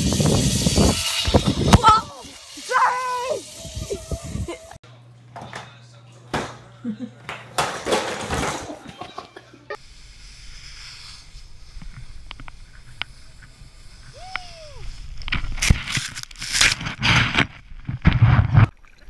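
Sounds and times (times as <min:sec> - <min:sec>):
wind on camera: 0:00.0 - 0:02.3, 0:03.4 - 0:04.6
snowboard carving on snow: 0:09.8 - 0:15.8.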